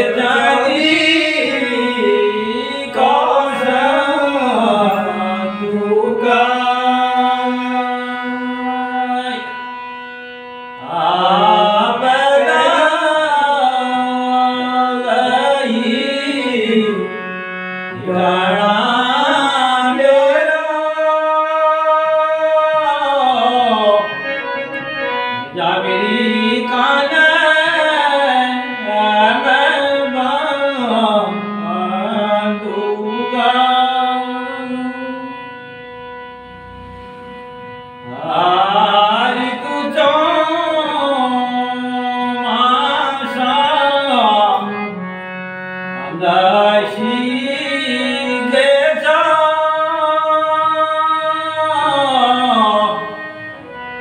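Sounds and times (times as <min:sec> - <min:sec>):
man singing folk song: 0:00.0 - 0:09.5, 0:46.1 - 0:53.0
steady drone: 0:00.0 - 0:43.8.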